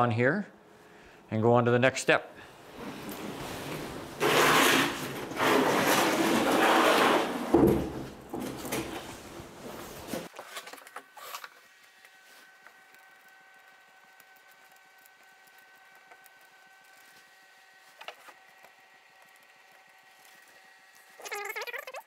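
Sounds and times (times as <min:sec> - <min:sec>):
plastic sled scraping on concrete: 0:02.8 - 0:09.2.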